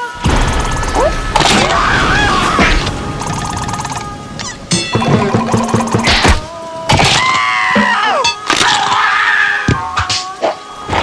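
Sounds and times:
scream: 0.0 - 3.2, 6.2 - 9.9
comic cartoon music: 0.0 - 9.1.

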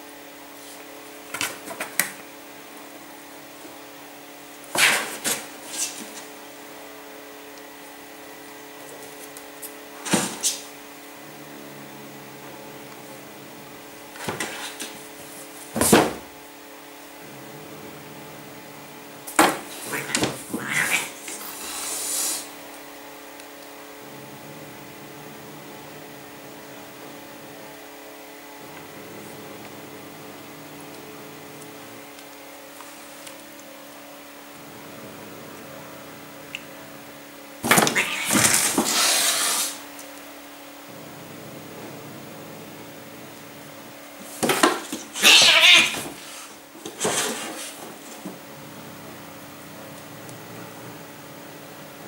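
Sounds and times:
cats scuffling: 0.5 - 11.1, 12.4 - 16.4, 18.5 - 24.0, 37.6 - 40.2, 42.9 - 48.6
hissy rush: 20.8 - 22.6, 38.5 - 39.9.

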